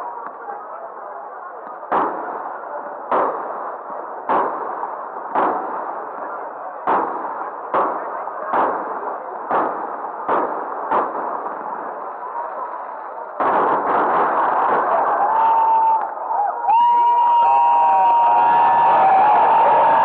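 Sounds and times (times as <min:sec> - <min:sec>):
firework shells bursting: 0:06.8 - 0:12.1, 0:13.3 - 0:15.3.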